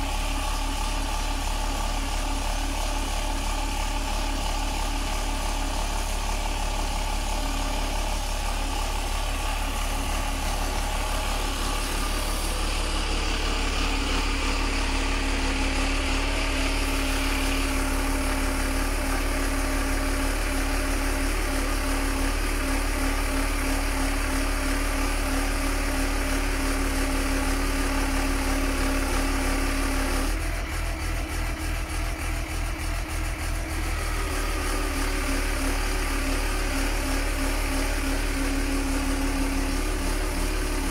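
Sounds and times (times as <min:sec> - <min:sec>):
truck engine running: 0:00.0 - 0:40.9.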